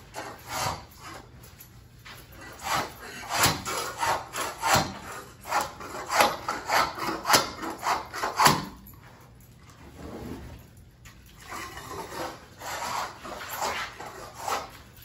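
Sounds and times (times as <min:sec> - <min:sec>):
floor scraper scraping vinyl floor: 0:00.0 - 0:01.4, 0:02.3 - 0:08.8, 0:11.4 - 0:15.0.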